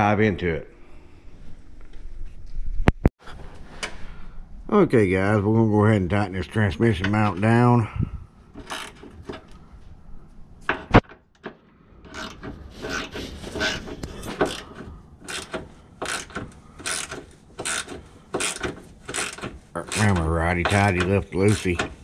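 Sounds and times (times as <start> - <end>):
socket ratchet clicking: 15.3 - 20.3.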